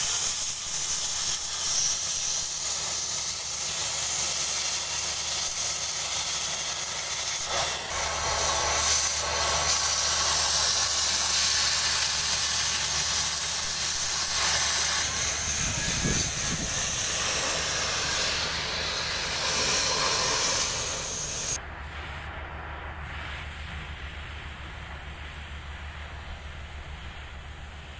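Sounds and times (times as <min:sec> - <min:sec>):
cutting torch hissing: 0:00.0 - 0:21.6.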